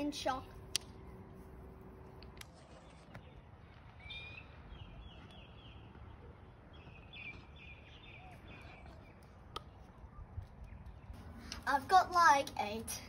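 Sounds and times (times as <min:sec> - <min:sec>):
faint outdoor rumble: 0:00.0 - 0:13.0
bird chirping: 0:02.6 - 0:11.2.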